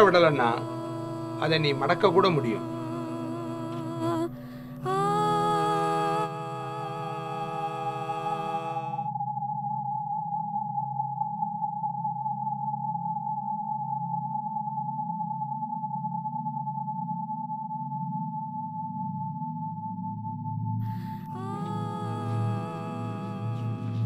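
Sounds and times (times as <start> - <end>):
steady electronic tone: 0.0 - 9.6, 20.9 - 24.0
low wavering drone: 0.0 - 9.7, 20.8 - 24.0.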